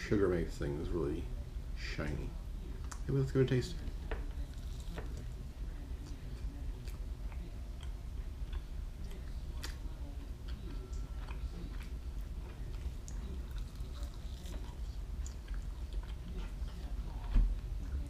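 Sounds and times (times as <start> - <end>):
steady low hum: 0.0 - 18.0
man chewing: 4.4 - 5.4, 6.0 - 18.0.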